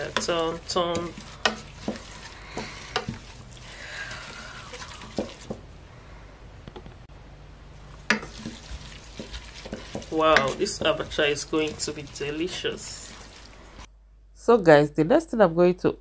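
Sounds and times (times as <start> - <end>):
wood knocking on metal pot: 0.0 - 3.4, 4.8 - 5.7, 8.0 - 12.6
wooden spatula stirring thick mixture: 0.0 - 5.8, 7.8 - 13.9.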